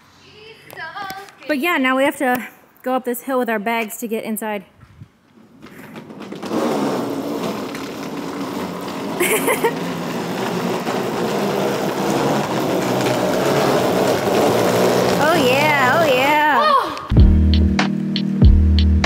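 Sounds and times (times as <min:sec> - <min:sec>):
suitcase wheels rolling on concrete: 0:04.8 - 0:16.6.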